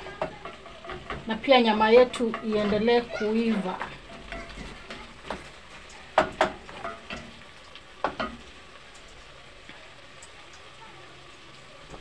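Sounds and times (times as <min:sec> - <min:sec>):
spoon knocking against pot: 0:00.0 - 0:05.5, 0:06.1 - 0:07.4, 0:08.0 - 0:08.4
wooden spoon stirring stew: 0:00.0 - 0:08.4
faint sizzle of stew frying: 0:00.0 - 0:12.0.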